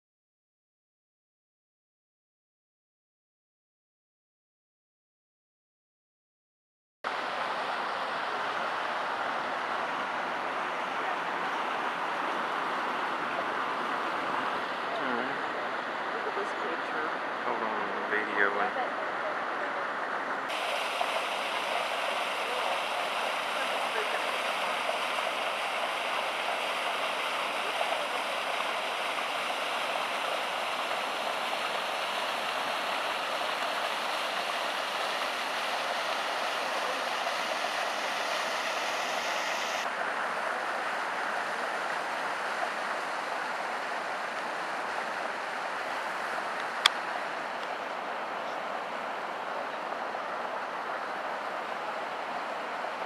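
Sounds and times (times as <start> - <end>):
water rushing over rocks: 7.1 - 53.0.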